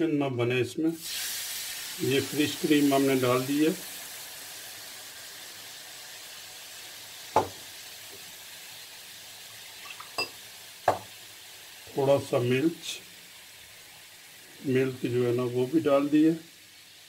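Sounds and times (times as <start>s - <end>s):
sauce sizzling in frying pan: 1.0s - 17.0s.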